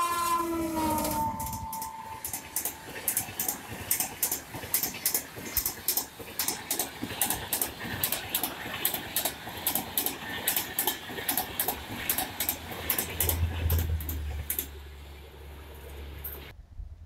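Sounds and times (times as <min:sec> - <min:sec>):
low hum: 0:00.0 - 0:04.3
train wheels clicking over rail joints: 0:00.0 - 0:14.8
rolling rumble of train: 0:00.0 - 0:17.0.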